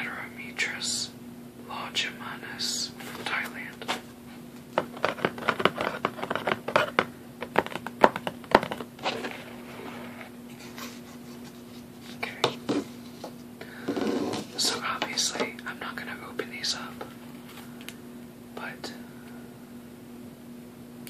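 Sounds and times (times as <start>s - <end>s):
fingers tapping on cardboard: 4.8s - 8.9s
nails scratching on cardboard: 4.8s - 10.3s.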